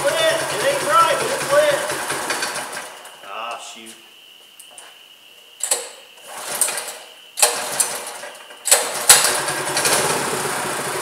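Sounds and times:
small engine running: 0.0s - 3.1s, 8.8s - 11.0s
recoil starter pulls: 0.0s - 3.2s, 5.6s - 11.0s.

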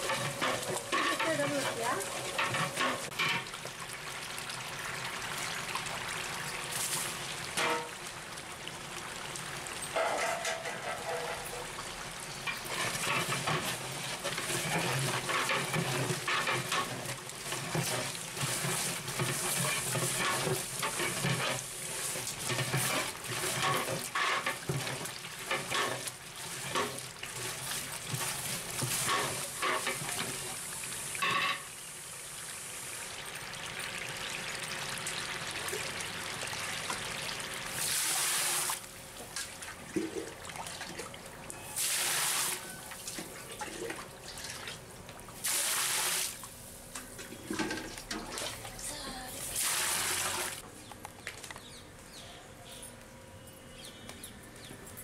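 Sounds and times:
ladle knocking and scraping a pot: 0.0s - 3.5s, 7.6s - 7.9s, 10.0s - 11.7s, 12.5s - 30.4s
liquid sloshing in a pot: 0.0s - 3.8s, 12.5s - 30.9s, 42.8s - 45.5s.

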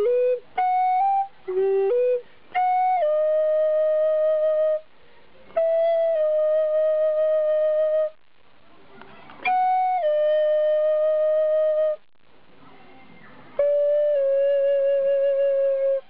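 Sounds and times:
flute playing long notes: 0.0s - 4.8s, 5.5s - 8.2s, 9.5s - 12.0s, 13.6s - 16.0s.

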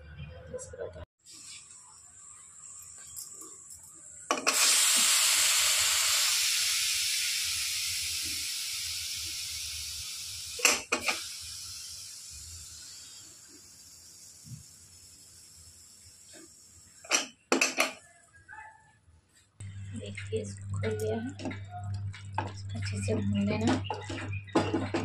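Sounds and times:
pressure cooker steam hissing: 4.3s - 17.2s.

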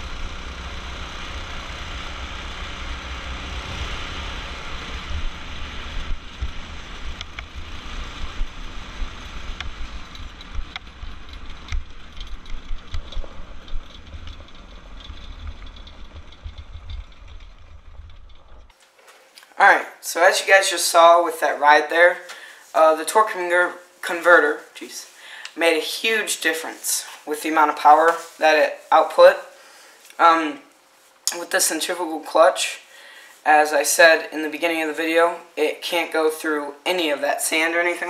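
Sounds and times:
go-kart engine running: 0.0s - 18.7s
frame rattling and knocking: 9.9s - 18.7s.

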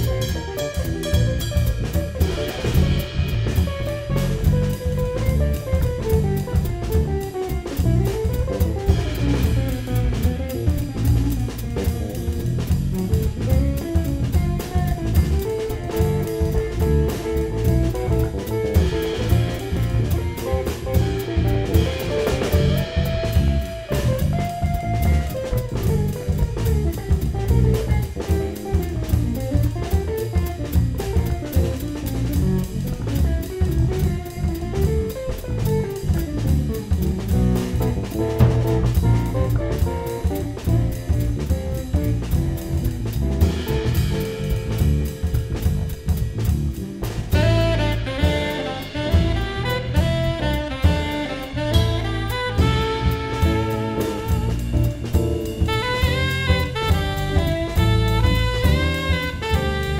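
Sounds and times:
electric guitar lead: 0.0s - 42.7s, 43.4s - 59.9s
drum kit: 0.0s - 59.9s
electric bass: 0.0s - 59.9s.

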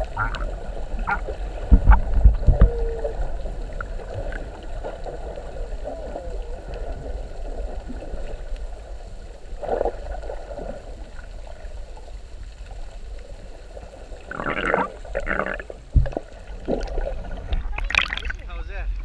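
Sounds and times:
low underwater rumble: 0.0s - 19.0s
underwater gurgling: 0.0s - 19.0s.

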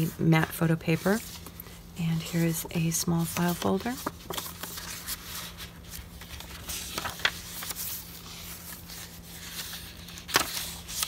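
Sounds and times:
paper rustling: 0.0s - 11.0s
stiff pages turning: 0.0s - 11.0s
soft paper clicks: 9.6s - 11.0s.

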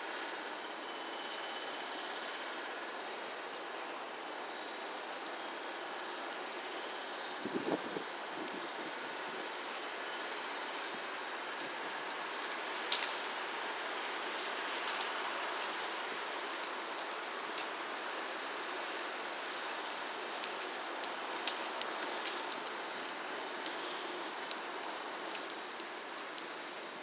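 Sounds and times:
distant train rolling on rails: 0.2s - 27.0s
light clicks and ticks: 14.2s - 26.5s.

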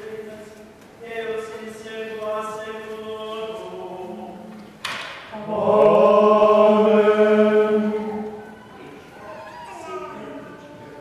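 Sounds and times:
choir singing chant: 1.4s - 4.6s, 5.3s - 9.0s.

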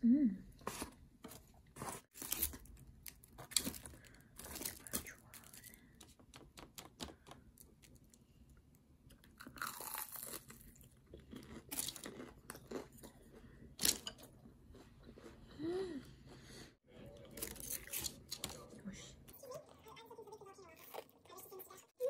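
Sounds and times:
crunching fried batter: 9.1s - 15.4s, 17.2s - 18.7s.

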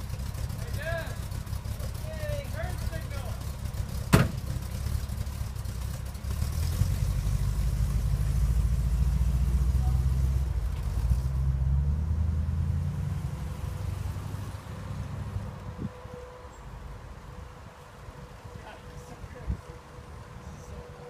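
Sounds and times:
pickup engine running: 0.0s - 18.6s
truck door shutting: 4.0s - 4.7s.

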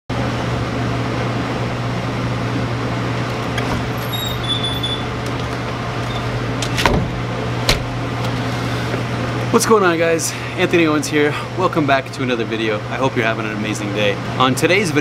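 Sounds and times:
machine hum with low drone: 0.1s - 15.0s
sharp knocks: 6.7s - 7.9s.

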